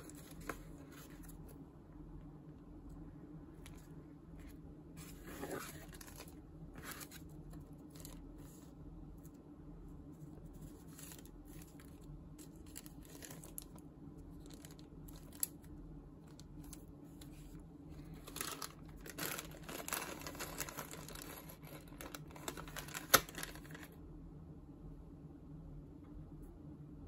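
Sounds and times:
plastic bags crinkling: 18.1s - 23.9s.

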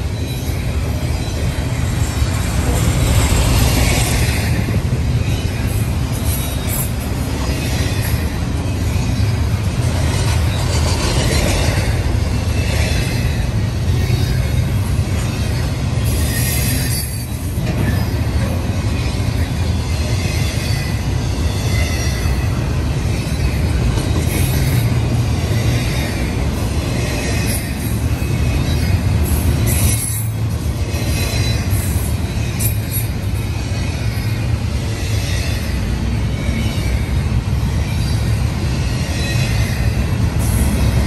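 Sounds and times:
steel wheels rumbling on rail: 0.0s - 41.0s
high wheel squeal: 12.5s - 26.3s.

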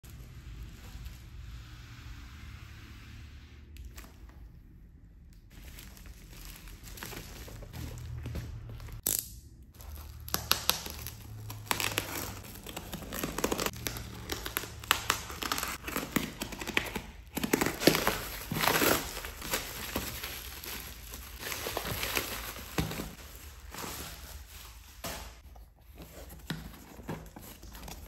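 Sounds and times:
bubble wrap crinkling: 5.5s - 28.0s.

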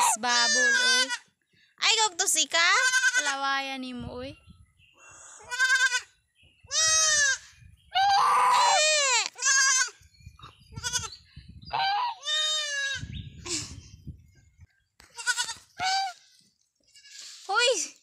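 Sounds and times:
baby goats bleating: 0.0s - 1.3s, 2.8s - 3.4s, 5.4s - 6.1s, 6.7s - 10.0s, 10.8s - 11.2s, 11.8s - 13.1s, 15.1s - 16.2s.

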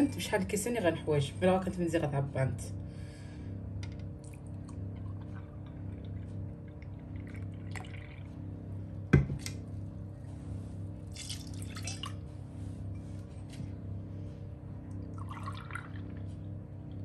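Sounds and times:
low steady hum: 0.0s - 17.0s
milk pouring into saucepan: 11.1s - 12.2s, 15.2s - 16.0s.

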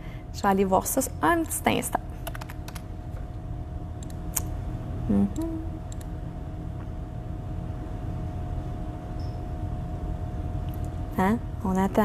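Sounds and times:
low hum: 0.0s - 12.0s
person humming: 5.1s - 5.9s.

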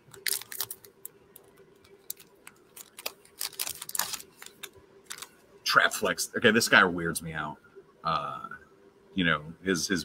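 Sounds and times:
foil pack crinkling and tearing: 0.1s - 5.3s.

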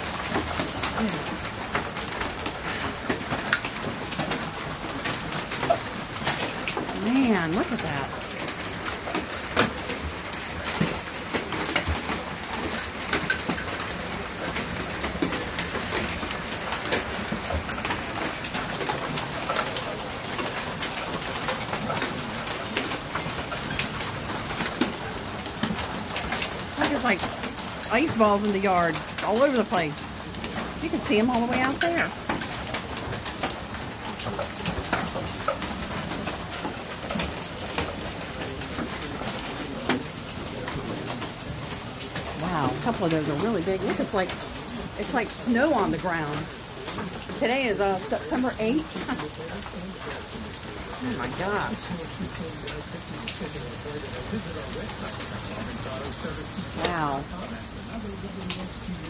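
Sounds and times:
hailstones ticking: 0.0s - 59.0s
heavy rain on a roof: 0.0s - 59.0s.

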